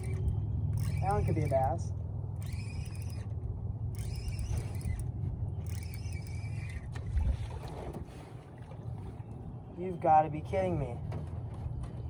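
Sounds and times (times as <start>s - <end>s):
fishing reel whirring: 0.0s - 7.5s.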